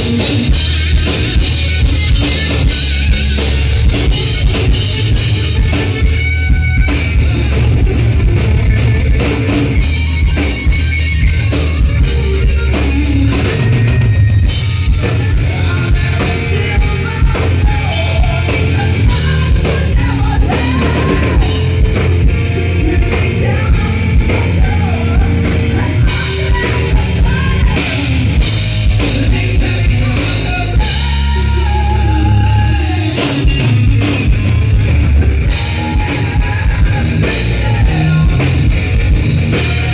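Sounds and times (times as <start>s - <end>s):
bass guitar: 0.0s - 39.9s
distorted electric guitar: 0.0s - 39.9s
drum kit: 0.0s - 39.9s
person singing: 14.9s - 34.6s, 35.4s - 39.9s.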